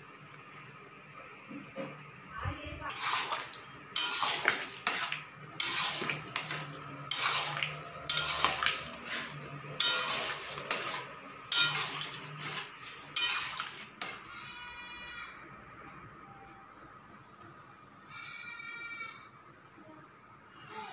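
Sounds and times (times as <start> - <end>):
metal spatula scraping a pan: 2.8 - 14.6.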